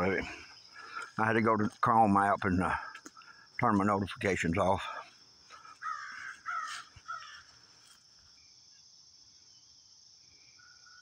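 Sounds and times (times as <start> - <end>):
bird calling: 0.0 - 1.8, 4.6 - 8.0
high drone of insects: 0.0 - 11.0.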